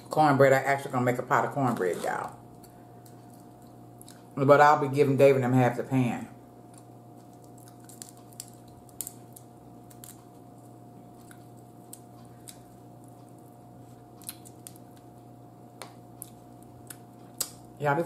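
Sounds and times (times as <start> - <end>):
faint steady hum: 0.0 - 18.0
crab shell snapping and clicking: 6.7 - 10.3, 14.2 - 15.1, 15.8 - 17.7.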